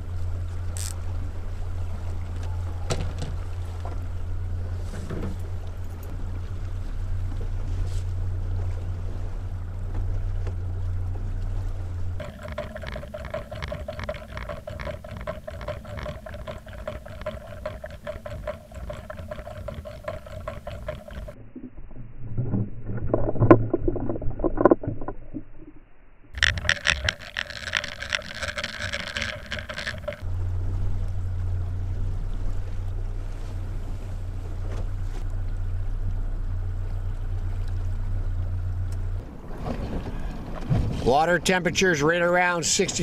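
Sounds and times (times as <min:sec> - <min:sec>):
boat motor humming: 0:00.0 - 0:40.7
muffled underwater water noise: 0:00.0 - 0:43.0
water gurgling and bubbling: 0:12.2 - 0:30.3.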